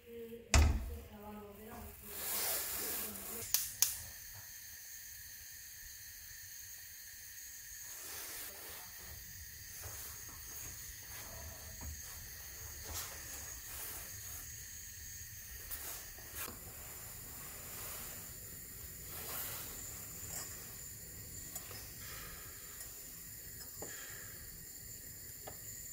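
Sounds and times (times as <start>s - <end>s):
gas burner hissing: 0.0s - 25.9s.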